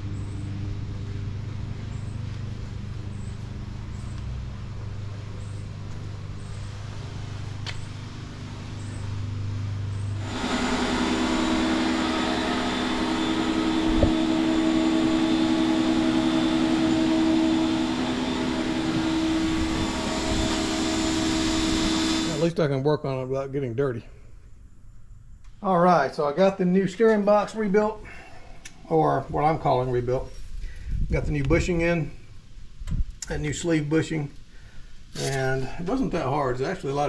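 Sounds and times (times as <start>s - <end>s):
mechanical drone with hiss: 0.0s - 22.6s
low machine hum: 0.0s - 37.0s.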